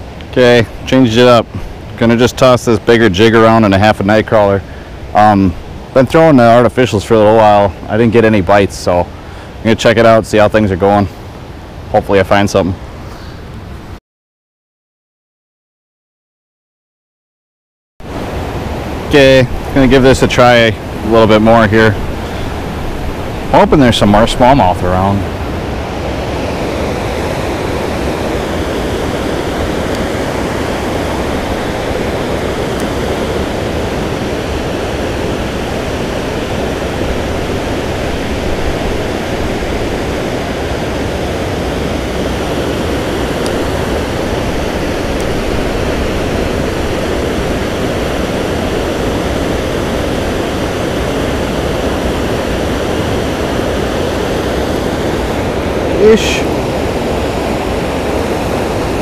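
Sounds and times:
water rushing over weir: 18.0s - 59.0s.

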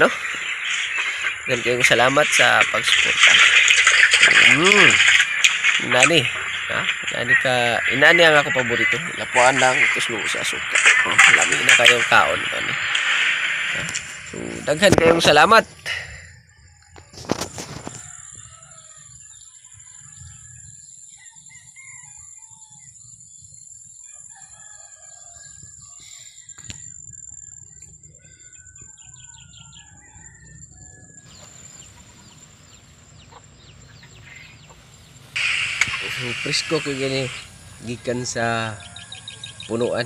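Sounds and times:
high-pitched whine: 0.0s - 17.8s, 30.8s - 40.0s
chickens clucking: 0.0s - 18.8s, 28.2s - 40.0s
rooster crowing: 16.2s - 19.4s, 21.2s - 22.9s, 24.1s - 26.0s, 28.3s - 32.3s, 35.4s - 39.8s.

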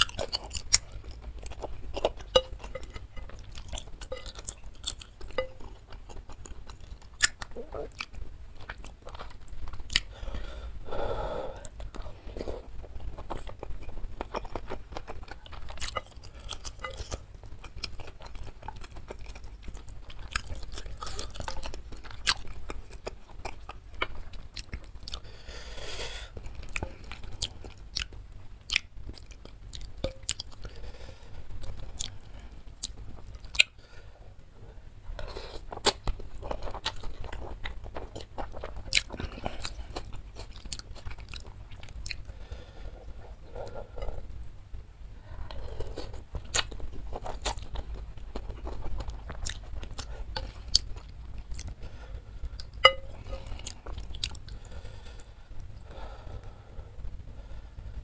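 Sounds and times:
man chewing with mouth clicks: 0.0s - 34.0s, 35.1s - 44.5s, 45.2s - 56.6s.

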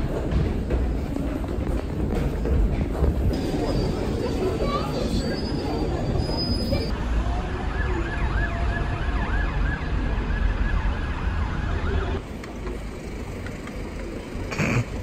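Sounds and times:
low rumble of street traffic: 0.0s - 15.0s.

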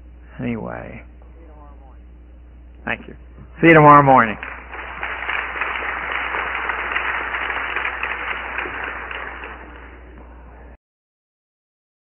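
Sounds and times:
low steady hum: 0.0s - 10.8s
audience applauding: 4.0s - 10.2s.

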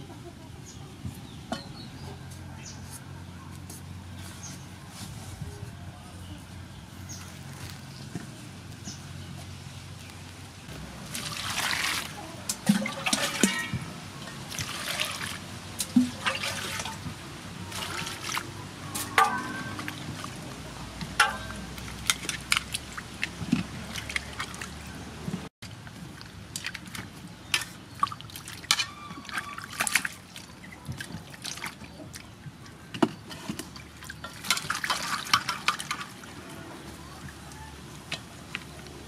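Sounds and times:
water splashing in metal basin: 10.9s - 32.3s, 33.3s - 36.5s.

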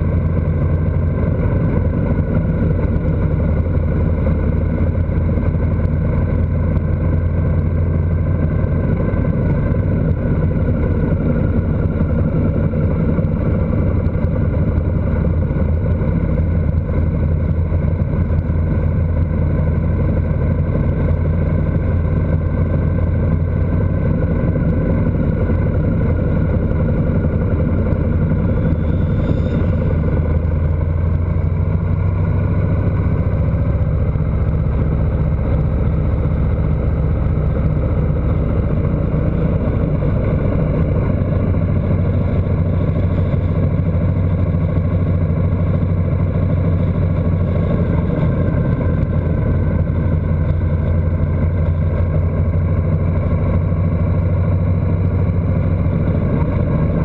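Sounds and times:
motorcycle engine running: 0.0s - 57.0s
wind rush: 24.0s - 31.3s.

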